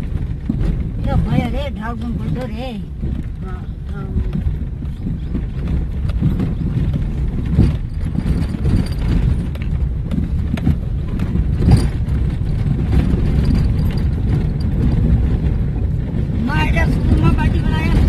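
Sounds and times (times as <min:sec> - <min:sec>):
car engine and tyres rumbling: 0:00.0 - 0:18.0
car knocking and rattling: 0:00.0 - 0:18.0.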